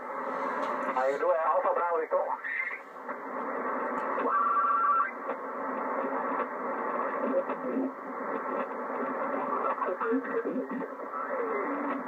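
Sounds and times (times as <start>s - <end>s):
radio static: 0.0s - 12.0s
garbled mistuned radio voices: 0.9s - 2.9s, 4.1s - 6.2s, 6.9s - 12.0s.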